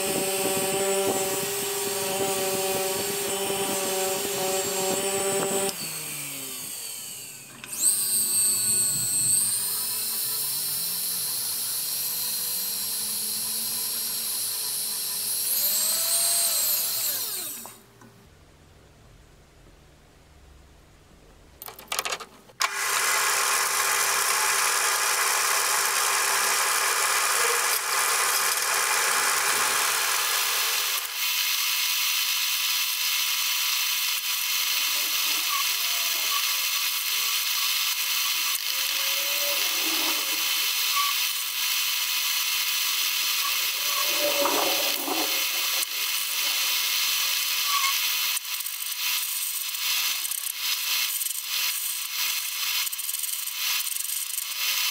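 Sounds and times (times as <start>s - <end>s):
metal lathe cutting whine: 0.0s - 17.7s, 22.8s - 31.5s, 34.2s - 49.1s.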